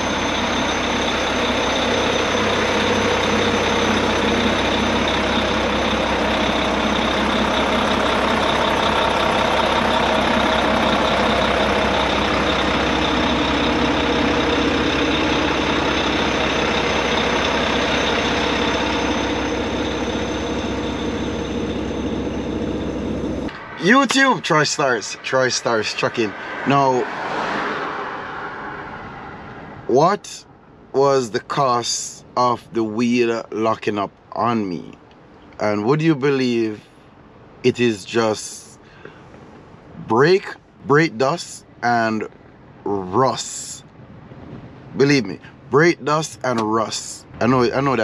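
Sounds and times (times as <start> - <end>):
diesel truck engine idling: 0.0 - 27.3.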